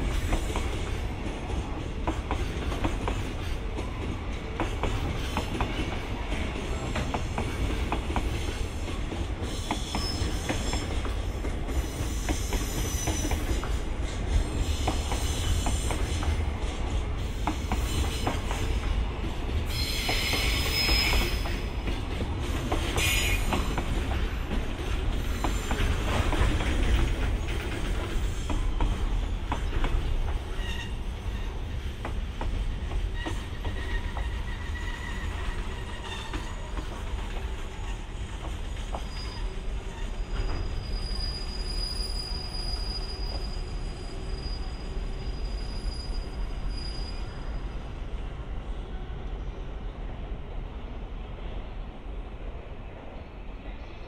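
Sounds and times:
freight train rumbling past: 0.0 - 54.0
high wheel squeal: 9.5 - 11.0, 11.8 - 13.6, 19.7 - 21.7, 33.1 - 36.7, 39.0 - 47.8.

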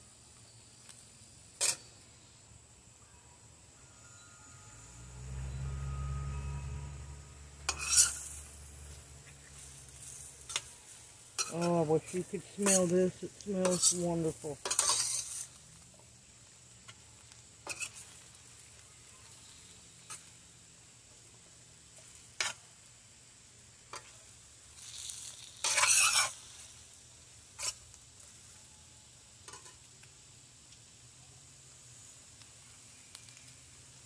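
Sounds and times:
metal spoon scraping a pan: 1.6 - 1.9, 7.6 - 10.8, 11.4 - 15.6, 17.6 - 18.2, 24.8 - 26.6, 27.6 - 27.8
food sizzling in a skillet: 3.8 - 34.0.

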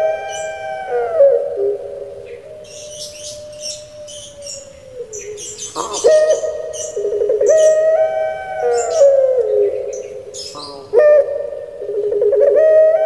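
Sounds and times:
dove cooing: 0.0 - 13.0
small birds chirping: 2.0 - 12.4.

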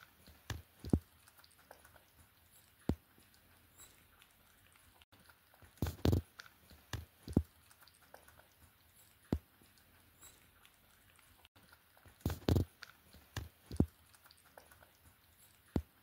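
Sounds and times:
cat chewing with crunches: 0.0 - 16.0.

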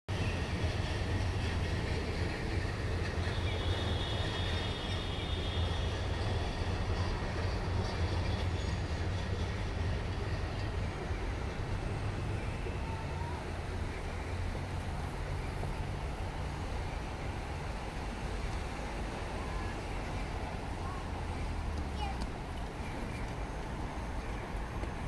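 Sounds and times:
train rumbling past: 0.1 - 25.0
high wheel squeal: 3.0 - 9.0.

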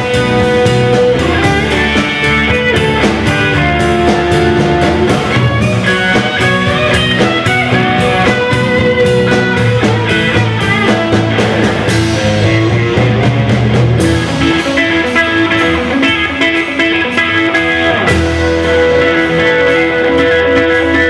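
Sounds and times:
bass: 0.0 - 21.0
drums: 0.0 - 21.0
electric guitar lead line: 0.0 - 21.0.

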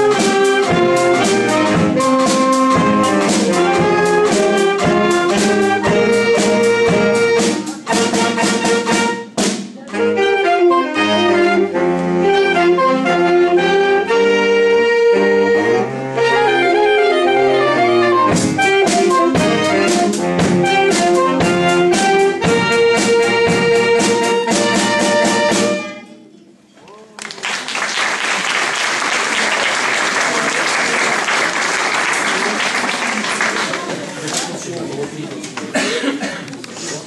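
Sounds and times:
drum kit: 0.0 - 13.8, 16.2 - 25.9
saxophone ensemble playing jazz: 0.0 - 26.1
audience applauding: 27.1 - 35.2.

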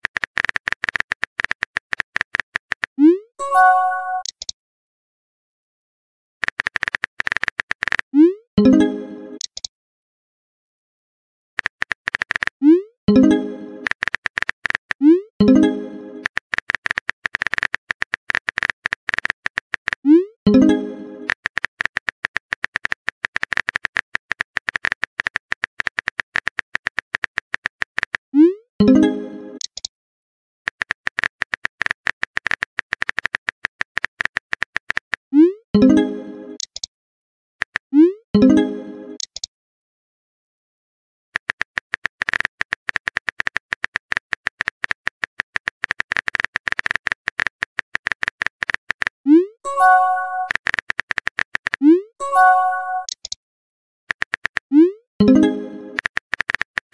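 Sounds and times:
phone keyboard typing clicks: 11.6 - 12.5, 13.8 - 15.0, 16.2 - 20.0, 30.7 - 35.2, 41.4 - 49.1, 49.8 - 53.4, 54.1 - 54.7, 55.4 - 56.9.

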